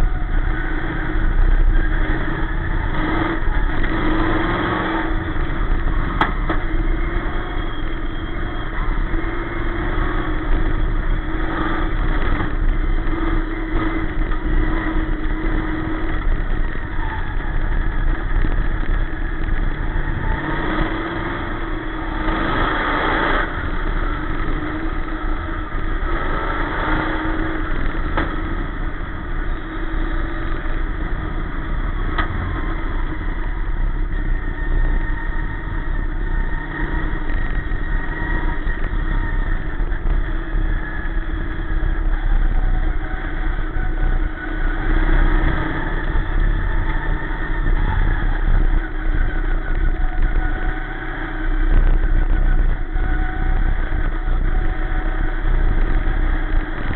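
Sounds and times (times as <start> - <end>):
chassis rumble: 0.0 - 56.9
race car engine running hard: 0.0 - 56.9
wind: 0.0 - 56.9.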